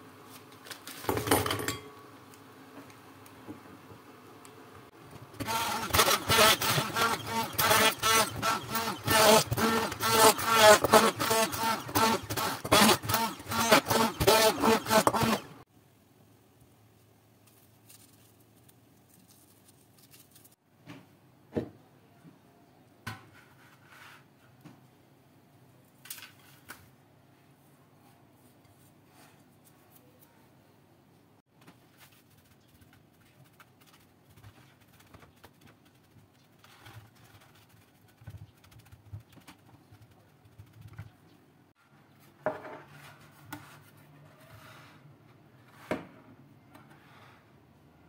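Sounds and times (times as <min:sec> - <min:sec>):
immersion blender running: 0:05.4 - 0:15.6
soft rustling of crumbs: 0:16.6 - 0:20.6.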